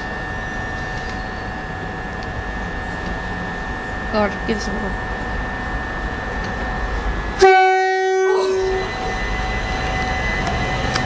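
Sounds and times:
train running noise: 0.0s - 11.0s
train horn blast: 6.9s - 11.0s.

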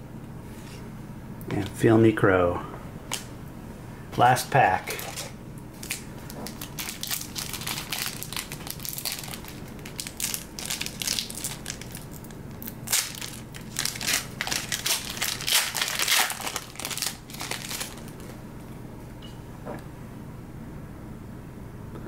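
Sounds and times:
plastic wrapper tearing and crinkling: 4.9s - 18.4s.

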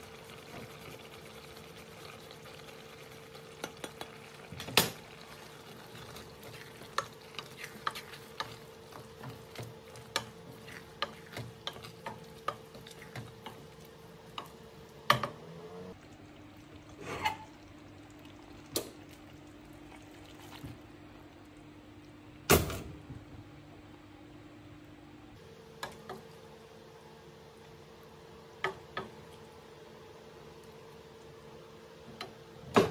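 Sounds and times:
food frying in a pan: 0.0s - 22.9s.

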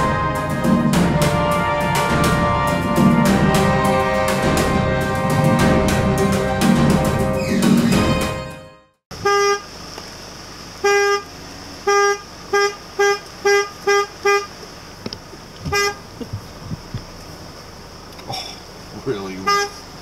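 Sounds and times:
vehicle horn tooting: 9.1s - 9.7s, 10.8s - 14.6s, 15.6s - 16.0s, 19.3s - 19.8s.

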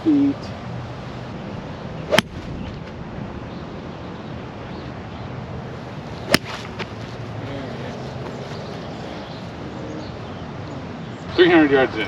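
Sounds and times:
wind on microphone: 1.4s - 4.3s
golf club striking ball: 2.1s - 3.0s, 6.2s - 6.9s.

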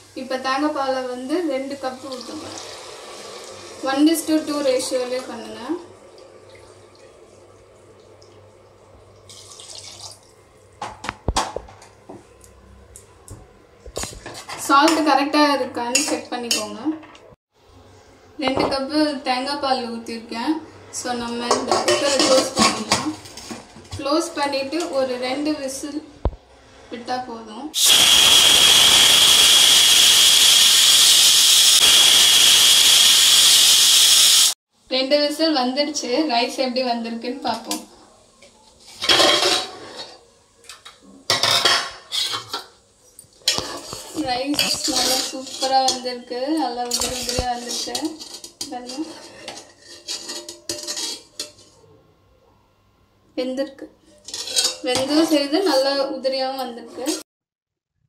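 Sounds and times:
pressure cooker steam hiss: 2.6s - 4.7s, 27.8s - 34.6s
liquid pouring into pot: 9.1s - 10.4s
pressure cooker whistle: 27.8s - 34.6s.

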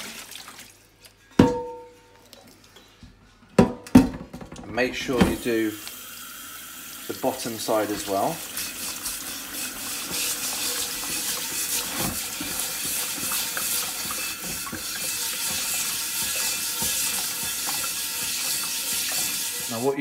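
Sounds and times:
tap water splashing on skillet: 8.6s - 19.7s
brush scrubbing iron: 8.6s - 20.0s.

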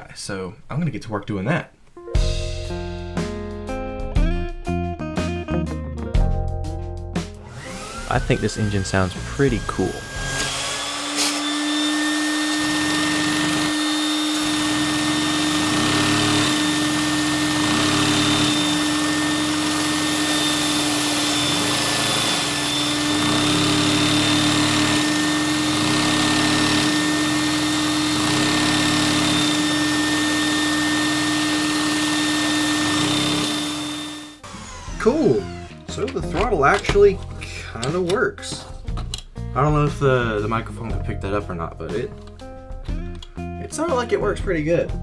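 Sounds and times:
vacuum cleaner running: 7.4s - 37.0s.

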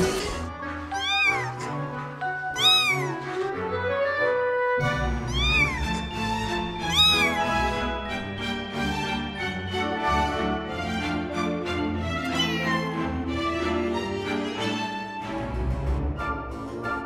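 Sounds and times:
background music: 0.0s - 17.0s
kitten mewing: 0.9s - 1.8s, 2.6s - 3.2s, 5.2s - 6.1s, 6.8s - 7.5s, 12.4s - 12.8s.

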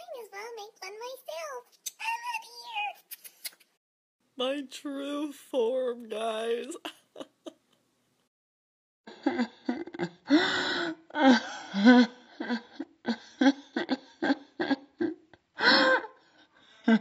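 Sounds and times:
woman laughing: 6.6s - 7.8s, 11.2s - 16.0s.

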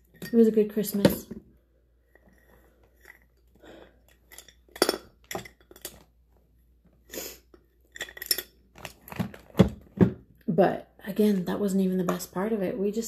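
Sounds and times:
makeup containers clacking: 4.1s - 6.1s.

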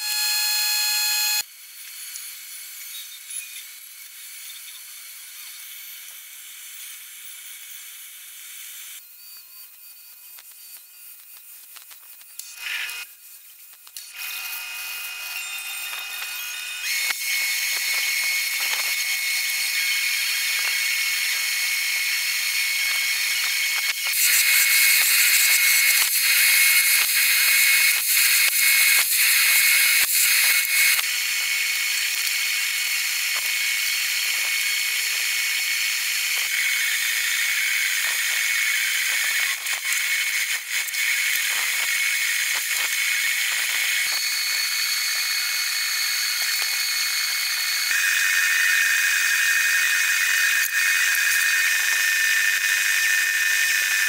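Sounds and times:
drill motor whining: 0.0s - 54.0s.

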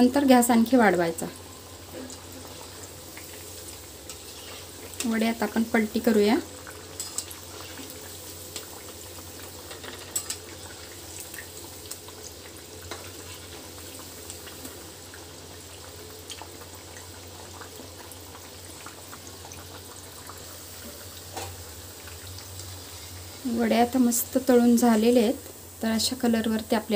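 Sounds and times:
deep-frying oil sizzling: 0.0s - 26.9s.

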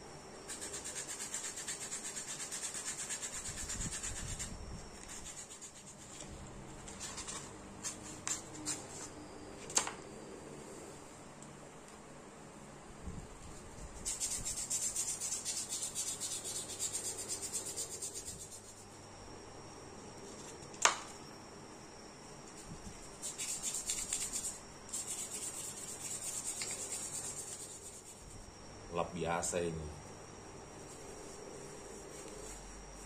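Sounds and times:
wood sanding strokes: 0.5s - 6.0s, 14.0s - 18.8s, 23.2s - 28.2s.

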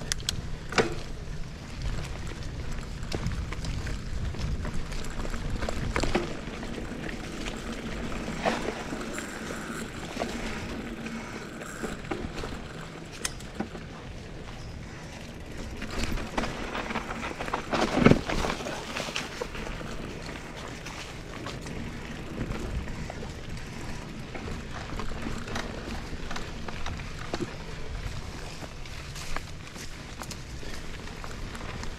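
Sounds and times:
bike frame rattling and knocking: 0.0s - 1.2s, 3.0s - 14.8s
bike tyres on dirt and leaves: 0.0s - 31.9s.

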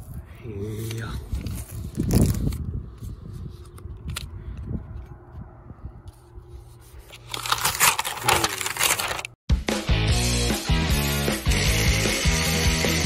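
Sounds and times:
paper tearing and crumpling: 1.4s - 2.6s, 7.0s - 9.4s
music: 9.5s - 13.0s.

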